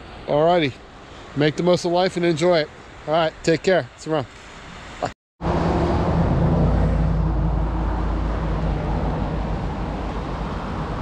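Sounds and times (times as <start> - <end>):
vehicle engine rumbling: 5.4 - 11.0.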